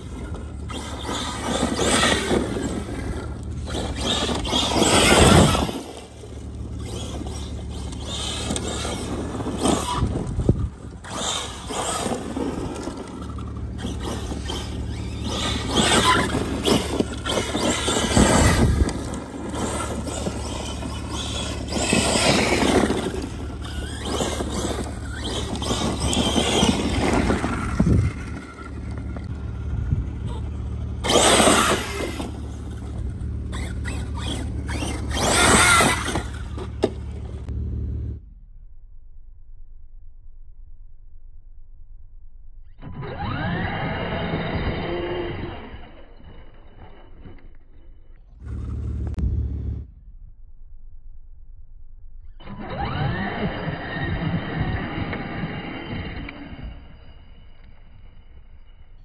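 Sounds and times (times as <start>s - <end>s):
electric motor whining: 0.0s - 37.5s, 42.8s - 47.4s.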